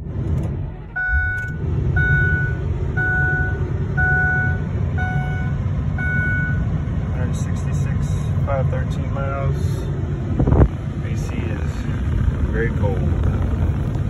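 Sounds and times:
engine starting and idling: 0.0 - 4.6
dashboard warning chime beeps: 1.0 - 6.7.

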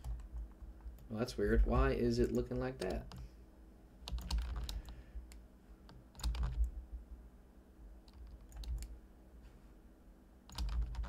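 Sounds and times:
keyboard keystrokes: 2.2 - 3.2, 4.1 - 5.0, 5.9 - 6.7, 8.1 - 8.9, 10.5 - 11.0.

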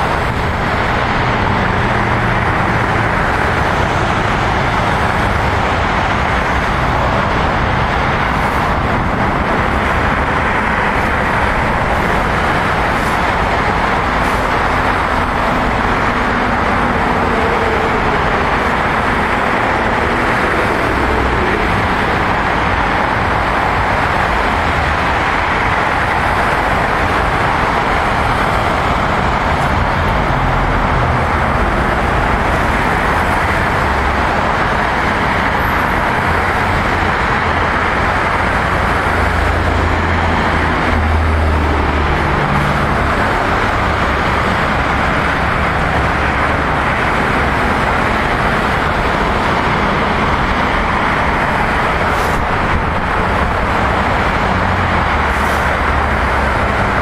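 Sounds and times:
low traffic rumble: 0.0 - 57.0
hiss of passing tyres: 52.0 - 52.6, 55.2 - 56.7.

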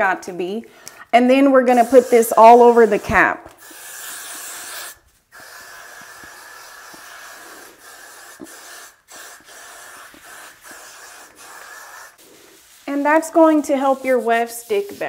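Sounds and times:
aerosol hairspray hissing: 1.7 - 15.0.

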